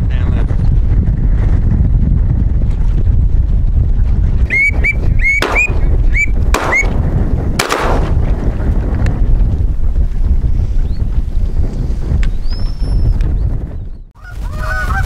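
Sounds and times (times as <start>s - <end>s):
wind buffeting microphone: 0.0s - 15.0s
whistled duck calls: 4.5s - 7.0s.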